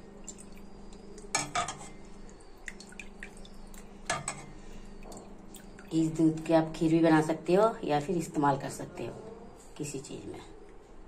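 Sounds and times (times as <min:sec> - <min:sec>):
liquid drips and splashes: 0:00.0 - 0:06.5
metal knocking against metal pot: 0:01.3 - 0:02.0, 0:04.1 - 0:05.2.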